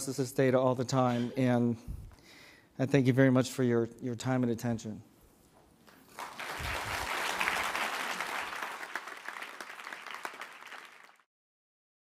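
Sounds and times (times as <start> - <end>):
audience applauding: 6.1 - 11.3.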